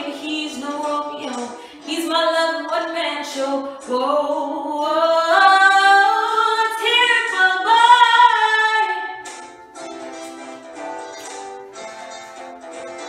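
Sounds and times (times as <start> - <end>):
woman singing a cappella: 0.0 - 9.2.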